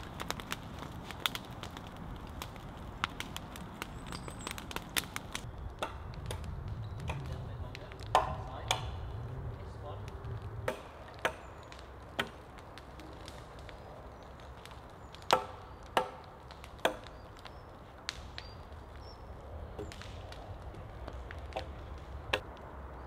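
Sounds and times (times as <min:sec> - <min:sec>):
sharp wooden knocks: 0:08.0 - 0:08.9, 0:10.6 - 0:11.6.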